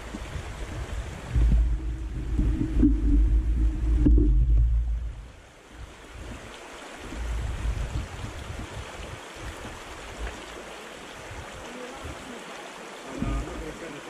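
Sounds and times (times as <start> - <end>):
low rumbling bumps: 0.0 - 9.1
river rushing over rocks: 0.0 - 14.0.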